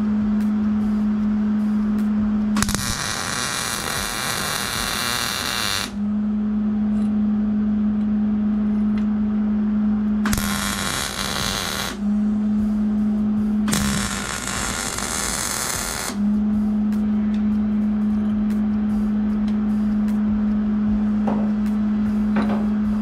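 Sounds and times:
steady low hum: 0:00.0 - 0:23.0
arc welding hiss: 0:02.6 - 0:06.0, 0:10.3 - 0:12.0, 0:13.7 - 0:16.2.

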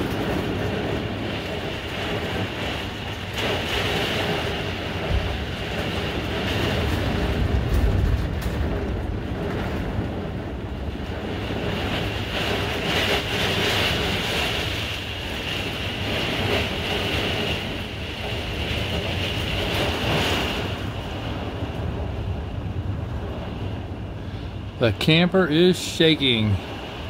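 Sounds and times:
gusting wind roar: 0:00.0 - 0:27.0
heavy rain against windows: 0:00.0 - 0:27.0.

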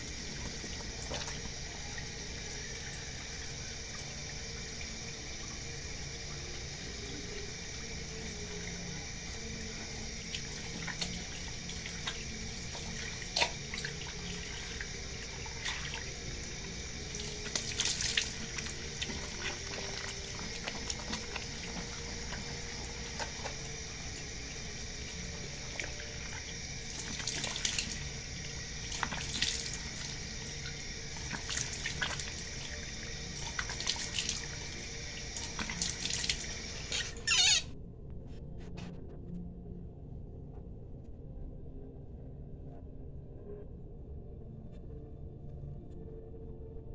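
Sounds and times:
tap water running into sink: 0:00.0 - 0:37.2
water splashes: 0:10.2 - 0:28.2, 0:28.8 - 0:37.0.

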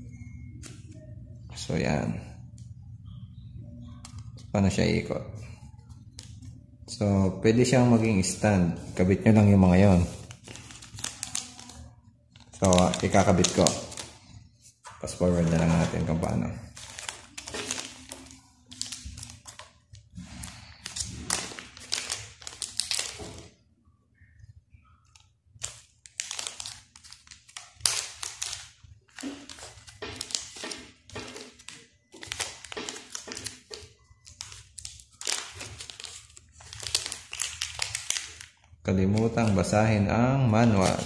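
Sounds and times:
plastic bags crinkling: 0:07.6 - 0:23.6, 0:25.1 - 0:41.0.

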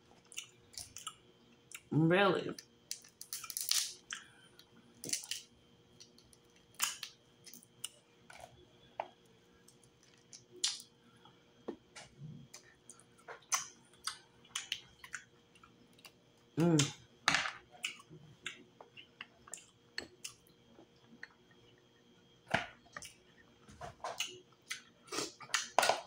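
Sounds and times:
shells cracking and peeling: 0:02.6 - 0:04.2, 0:05.0 - 0:08.0.

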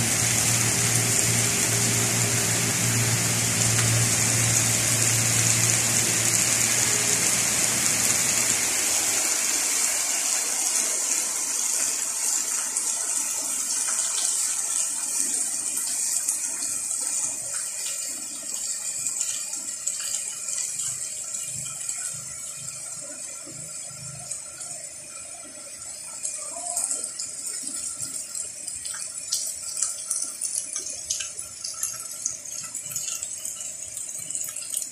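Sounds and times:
low hum: 0:00.0 - 0:09.4
heavy rain hissing: 0:00.0 - 0:13.5.

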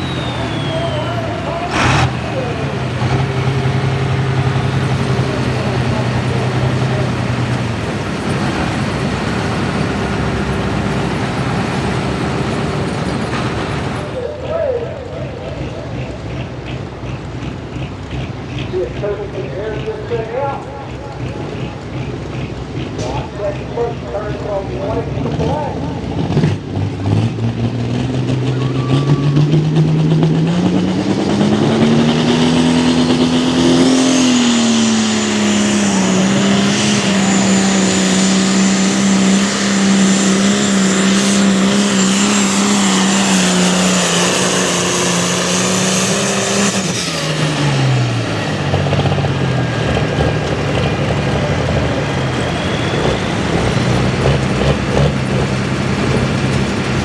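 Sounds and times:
diesel tractor engine at full throttle: 0:00.0 - 0:57.0.

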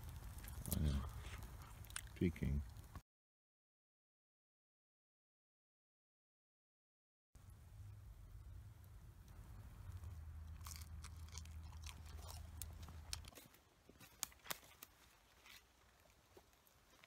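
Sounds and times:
faint crunching and chewing: 0:00.0 - 0:03.0, 0:08.8 - 0:17.0
low steady hum: 0:07.4 - 0:13.3.

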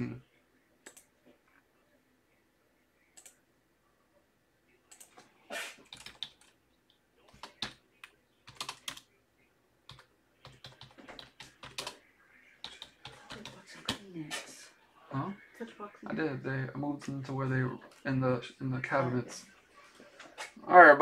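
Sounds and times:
computer keyboard typing: 0:05.8 - 0:06.6, 0:07.3 - 0:09.1, 0:09.9 - 0:12.0, 0:12.6 - 0:14.0.

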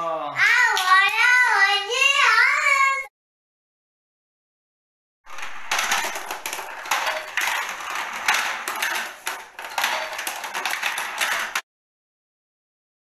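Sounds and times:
plastic balls rattling on ramp: 0:05.3 - 0:11.7.

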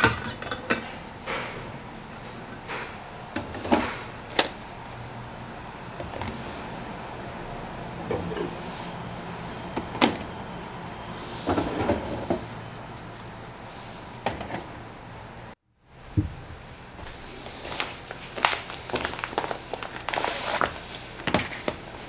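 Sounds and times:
scraping rustle: 0:17.0 - 0:22.0.

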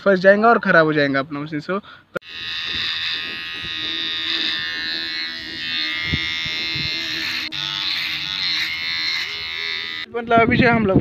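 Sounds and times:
hair clipper buzzing: 0:02.2 - 0:10.1.

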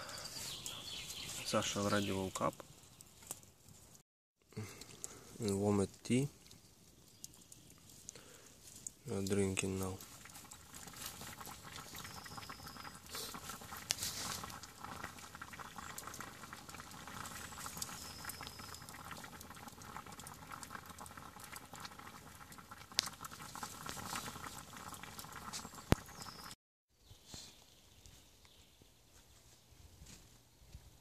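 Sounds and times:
campfire popping: 0:00.0 - 0:26.6
water boiling in metal pot: 0:04.8 - 0:26.6.

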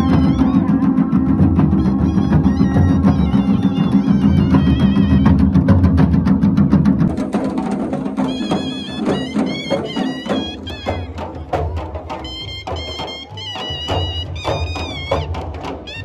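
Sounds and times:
high wavering melody: 0:00.0 - 0:05.6, 0:08.3 - 0:16.0
drums beaten rapidly: 0:00.0 - 0:16.0.

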